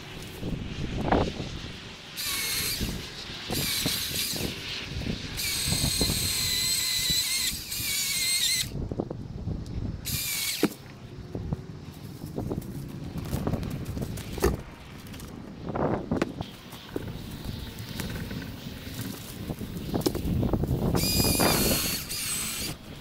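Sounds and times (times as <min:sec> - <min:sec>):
chainsaw cutting tree: 0:02.2 - 0:04.6, 0:05.3 - 0:08.8, 0:10.1 - 0:10.9, 0:16.5 - 0:22.8.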